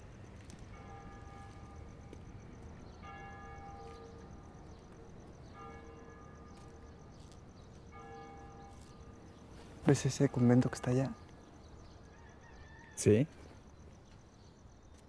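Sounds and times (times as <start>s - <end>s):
church bell tolling: 0.7s - 2.0s, 3.0s - 4.6s, 5.2s - 7.0s, 7.9s - 9.3s, 9.9s - 11.2s.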